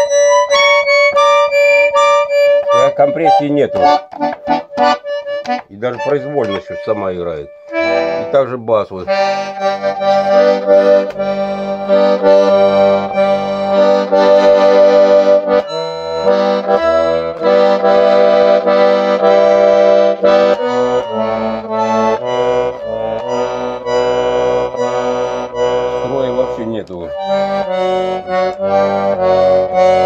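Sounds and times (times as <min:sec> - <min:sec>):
out of tune button accordion: 0:00.0 - 0:30.0.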